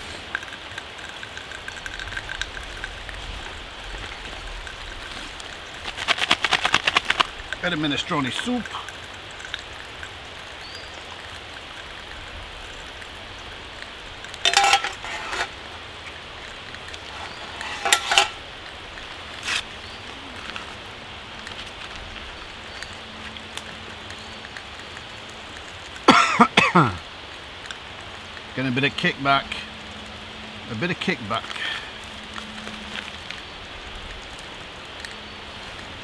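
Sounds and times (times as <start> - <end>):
packet rustling: 0.0 - 10.0
steady hiss: 0.0 - 36.0
metal cook pots clinking: 14.4 - 15.6, 17.3 - 18.4.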